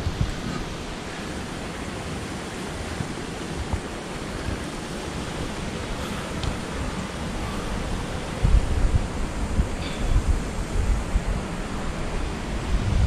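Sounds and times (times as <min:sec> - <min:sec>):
wind blowing over microphone: 0:00.0 - 0:13.0.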